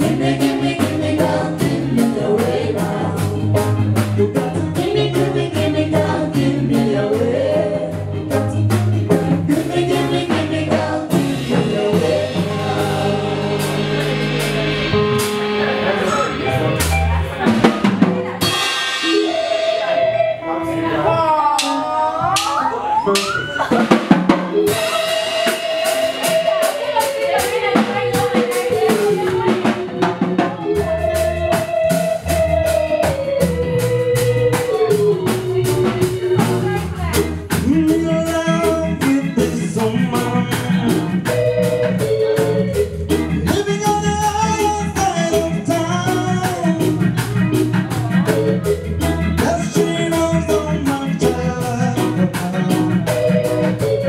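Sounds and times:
bass line: 0.0 - 54.0
drum kit beat: 0.0 - 54.0
electric guitars: 0.0 - 54.0
loud drum hit: 8.7 - 20.0.

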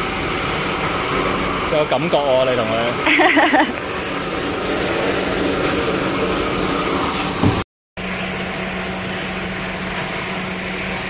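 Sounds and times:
water from hose into steel bowl: 0.0 - 11.0.

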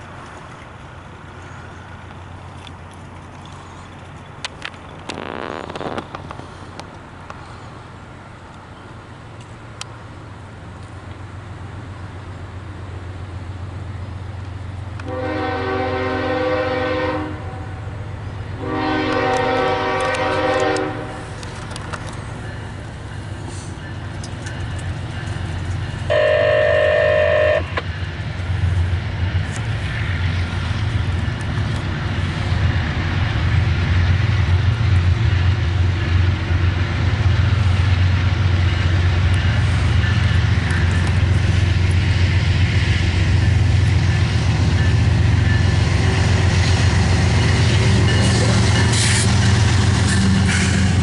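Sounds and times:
locomotive engine rumble: 0.0 - 51.0
train horn blast: 15.0 - 17.9, 18.6 - 21.2, 26.1 - 27.8.

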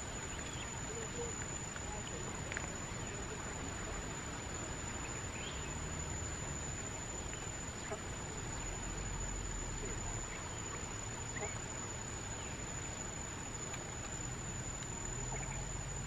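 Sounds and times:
high-pitched whine: 0.0 - 16.0
steady hiss: 0.0 - 16.0.

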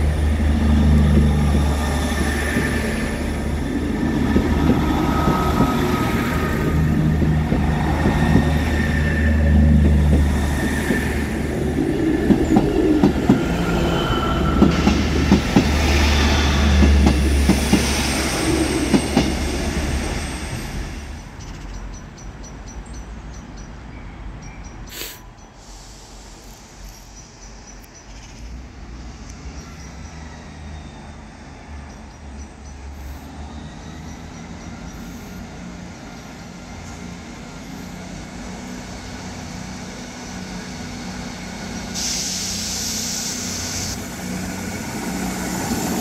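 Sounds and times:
wheels clicking over rail joints: 0.0 - 19.5
train rumbling past: 0.0 - 46.0.

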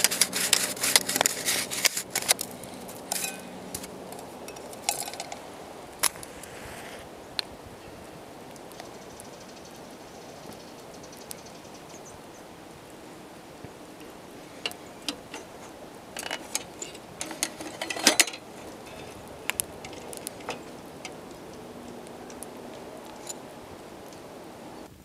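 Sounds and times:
metal lantern parts clinking: 0.0 - 6.2, 14.0 - 24.9
faint steady hiss: 0.0 - 25.0.

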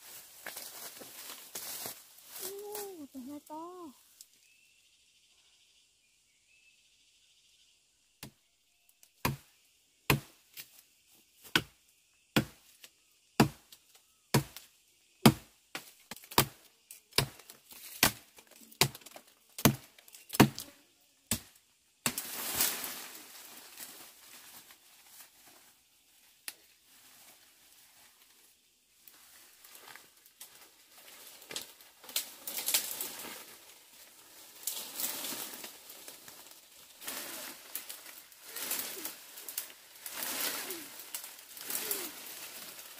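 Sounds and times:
twigs crackling: 0.0 - 4.5, 29.0 - 42.9
leaves rustling: 0.0 - 4.6, 15.2 - 42.9
blade chopping sapling trunk: 9.2 - 9.5, 10.1 - 10.7, 11.4 - 11.8, 12.4 - 12.7, 13.4 - 13.6, 14.3 - 20.7, 21.3 - 22.4.

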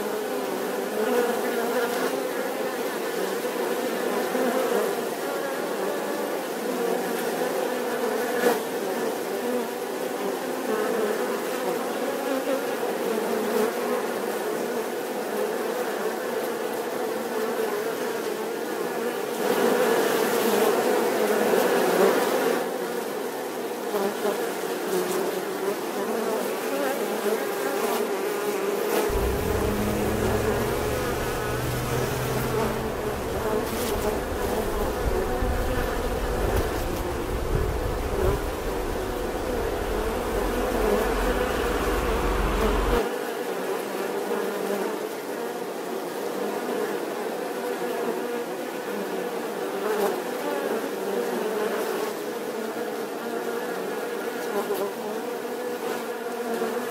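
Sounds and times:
bees buzzing: 29.1 - 43.0
low rumble: 29.1 - 43.0.

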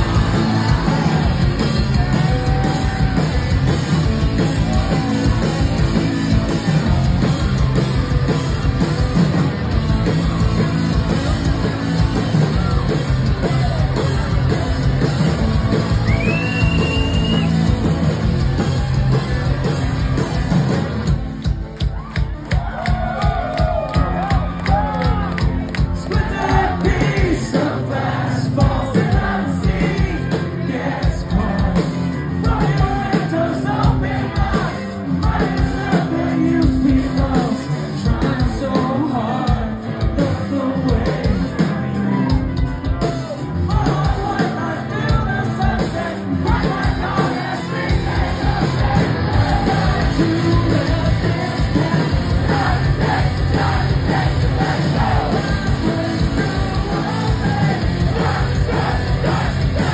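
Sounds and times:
rock band playing live: 0.0 - 59.9
singer singing and shouting: 26.0 - 59.9.

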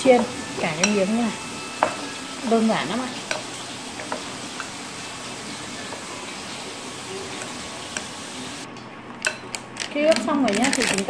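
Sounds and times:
steady hiss: 3.3 - 8.7.

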